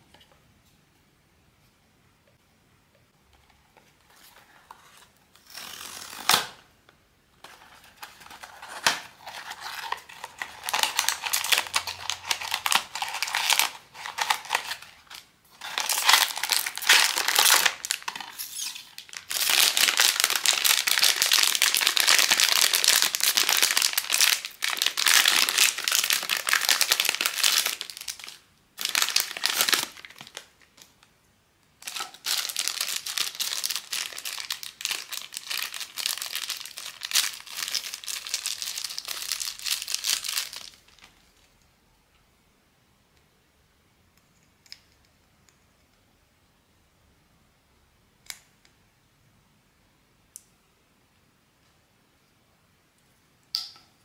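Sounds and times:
packaging crinkling and tearing: 7.4s - 30.9s, 31.8s - 41.5s.

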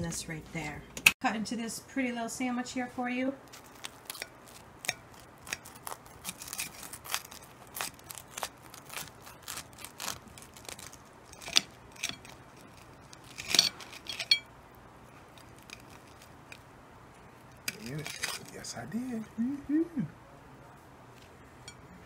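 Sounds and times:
knife sawing through toasted bread: 3.6s - 10.6s.

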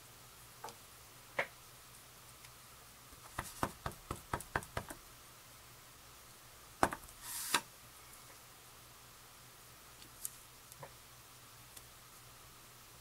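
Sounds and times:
stamp block tapping ink pad: 3.2s - 5.0s.

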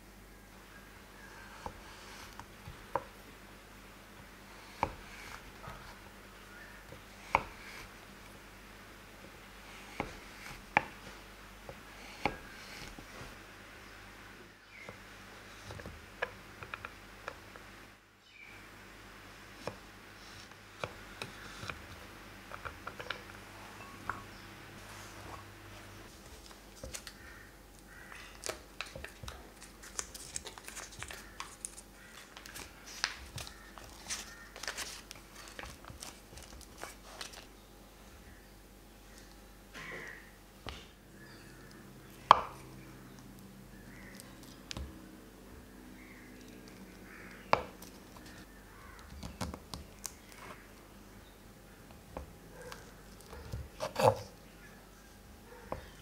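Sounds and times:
knife chopping chocolate on board: 7.3s - 7.9s, 12.2s - 13.0s
foil wrapper crinkling: 28.2s - 37.5s.

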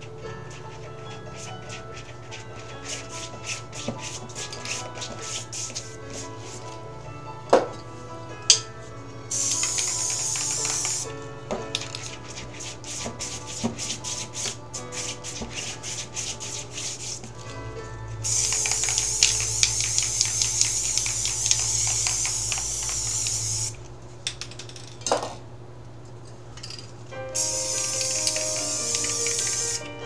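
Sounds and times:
soft piano music: 0.0s - 23.7s, 27.0s - 30.0s
spray paint can hissing: 2.8s - 5.9s, 9.3s - 11.1s, 11.9s - 17.2s, 18.2s - 23.8s, 27.4s - 29.9s.

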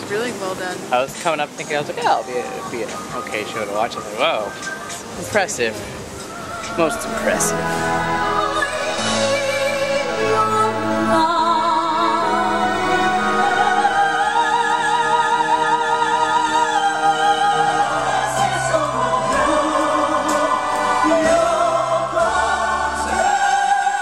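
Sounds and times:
woman singing operatically: 6.2s - 24.0s
orchestra playing: 6.3s - 21.8s.

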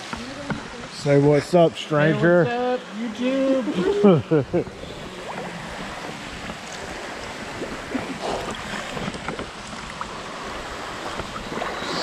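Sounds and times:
water lapping and sloshing: 0.0s - 12.0s
small water splashes: 4.7s - 12.0s.

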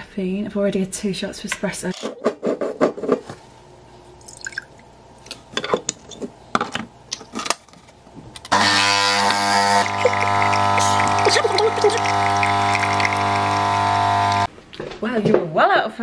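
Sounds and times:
coffee machine pump buzzing: 8.5s - 14.5s.

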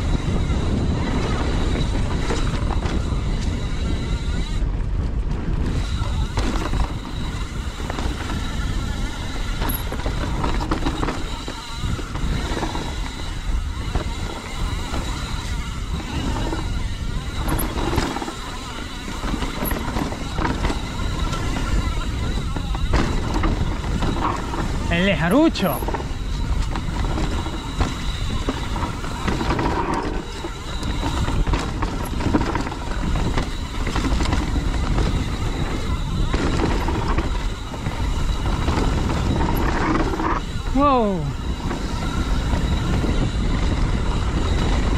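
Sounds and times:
bike rattling over rocks: 0.0s - 44.9s
wind on microphone: 0.0s - 44.9s
tyres rolling over rock: 25.7s - 40.8s.

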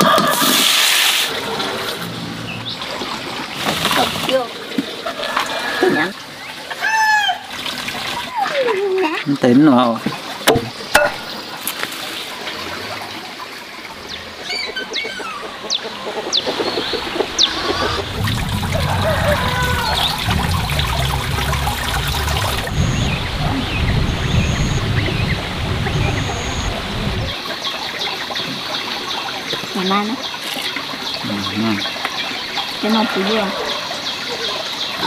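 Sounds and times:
running water trickling: 0.0s - 35.0s
birds chirping: 1.4s - 3.6s, 13.8s - 35.0s
low rumble: 17.4s - 27.4s.

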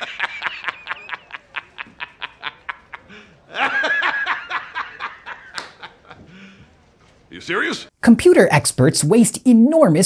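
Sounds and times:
man laughing loudly: 0.0s - 6.4s.

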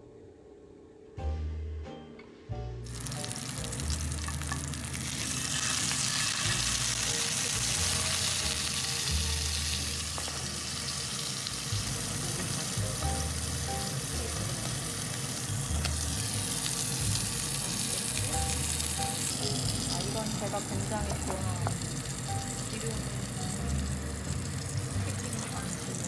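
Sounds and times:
meat sizzling in hot oil: 2.9s - 26.0s.

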